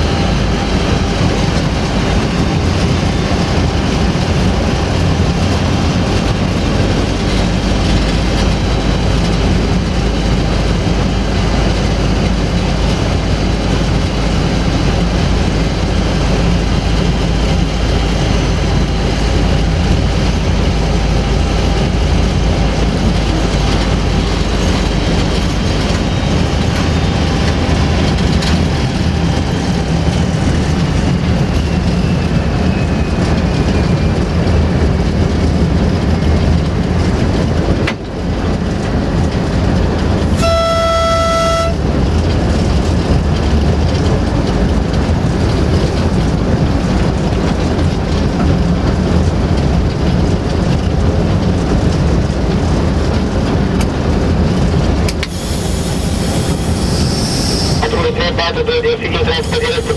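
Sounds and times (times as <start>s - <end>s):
diesel locomotive engine drone: 0.0s - 59.9s
locomotive horn blast: 40.3s - 42.1s.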